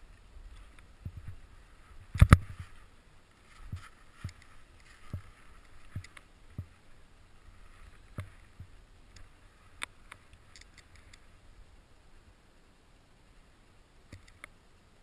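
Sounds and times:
sharp clicks: 9.1 - 11.3, 14.1 - 14.6.

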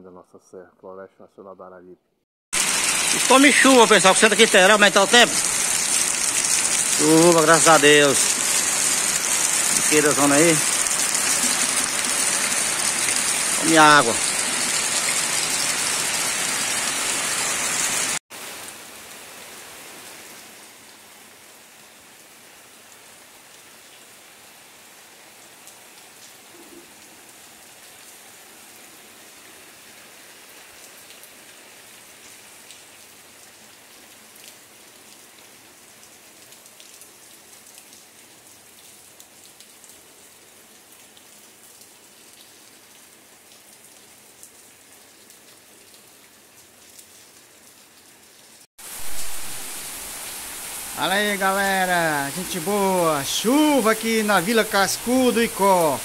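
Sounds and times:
heavy rain falling: 2.6 - 20.5, 48.8 - 56.0.

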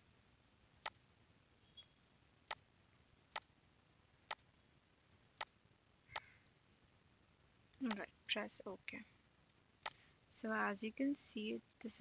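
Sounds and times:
computer mouse clicks: 0.8 - 1.0, 4.3 - 4.5, 6.2 - 6.4.

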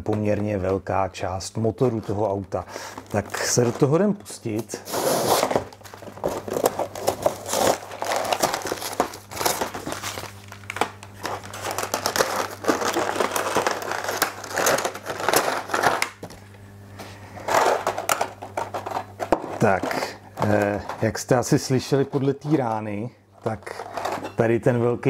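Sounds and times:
packaging crinkling and rustling: 1.8 - 16.6, 17.4 - 21.3, 23.4 - 24.4.

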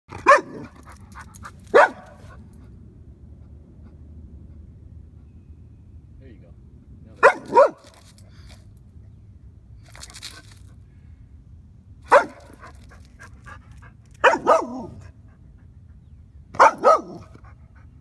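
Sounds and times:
dog barking: 0.2 - 0.8, 1.7 - 2.3, 7.2 - 7.9, 12.1 - 12.6, 14.2 - 15.0, 16.6 - 17.3.

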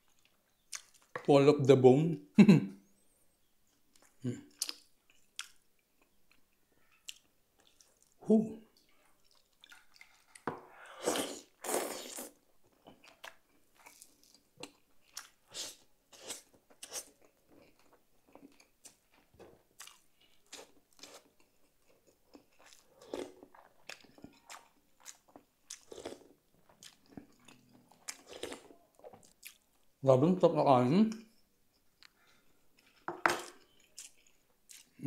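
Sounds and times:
person chewing and smacking: 0.0 - 1.1, 3.9 - 8.2, 8.8 - 29.9, 32.0 - 35.0.

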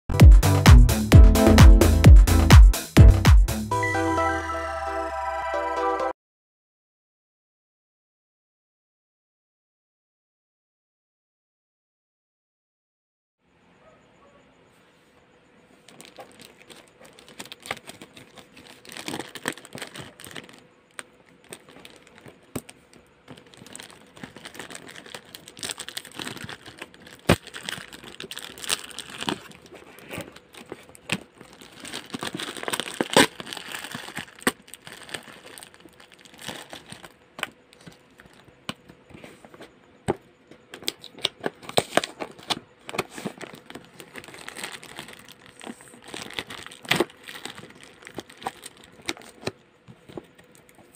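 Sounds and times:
plastic wrap crinkling: 15.8 - 38.6, 40.8 - 50.9.

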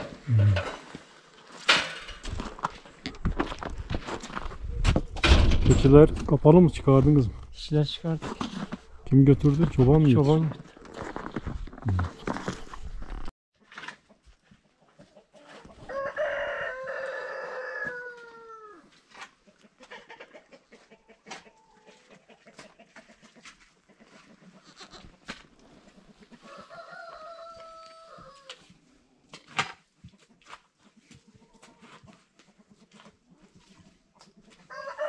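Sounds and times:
rooster crowing: 15.8 - 18.9, 26.4 - 28.6, 34.7 - 35.0.

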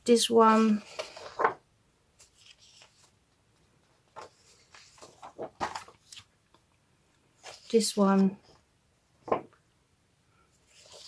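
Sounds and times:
paper rustling: 0.5 - 1.6, 2.2 - 3.2, 3.8 - 6.6, 7.4 - 8.6, 10.6 - 11.0
paper crackling: 2.2 - 3.2, 4.1 - 6.3, 10.7 - 11.0.

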